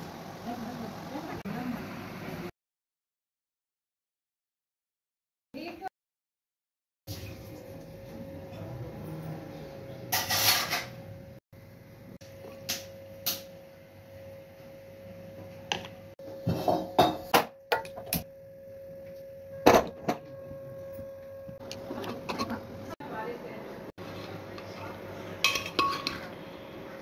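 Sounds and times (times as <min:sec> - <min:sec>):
metal pot knocks and clinks: 0:16.4 - 0:18.2, 0:25.5 - 0:26.2.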